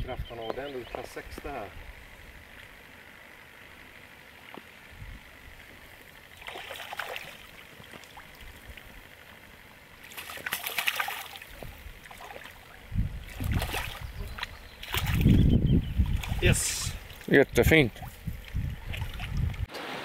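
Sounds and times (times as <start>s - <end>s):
fish splashing in water: 6.3s - 9.2s, 9.8s - 15.4s, 18.8s - 19.7s.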